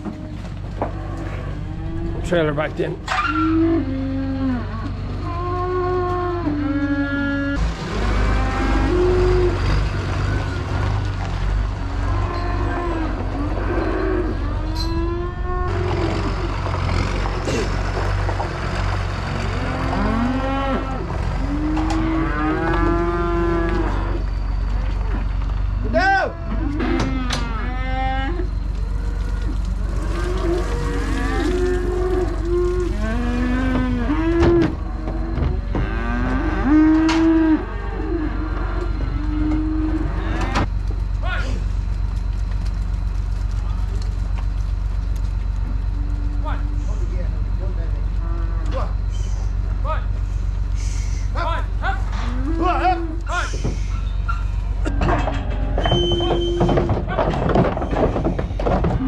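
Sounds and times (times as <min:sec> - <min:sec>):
calves bawling: 0:00.0 - 0:59.0
tractor engine running: 0:07.6 - 0:12.3, 0:13.0 - 0:21.5, 0:40.6 - 0:48.2.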